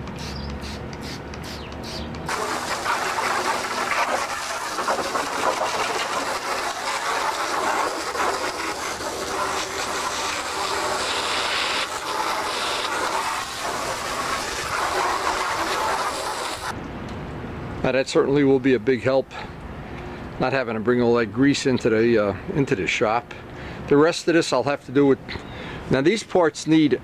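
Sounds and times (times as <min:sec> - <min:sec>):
hose water spraying and splashing: 0:00.0 - 0:16.8.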